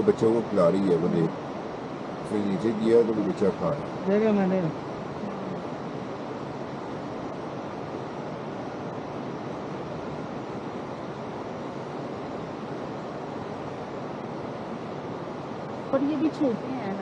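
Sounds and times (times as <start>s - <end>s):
river rushing over rapids: 0.0s - 17.0s.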